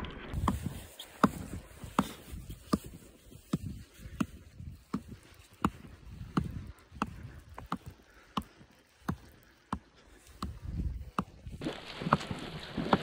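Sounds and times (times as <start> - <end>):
skis swishing on snow: 0.3 - 7.7, 10.1 - 13.0
ski gear clicks: 0.3 - 12.2.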